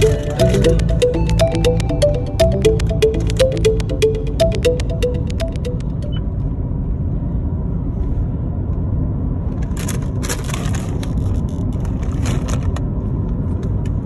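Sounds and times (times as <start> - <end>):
car road noise rumble: 6.2 - 14.0.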